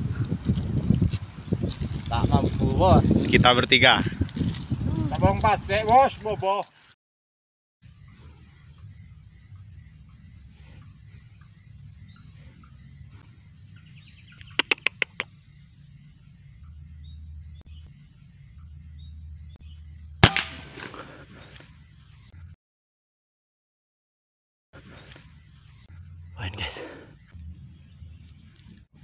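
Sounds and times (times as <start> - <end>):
low steady rumble: 7.9 - 14.4, 15.3 - 20.8, 27.3 - 29.0
bird high calls: 7.9 - 20.0
rifle shot: 20.2 - 21.2.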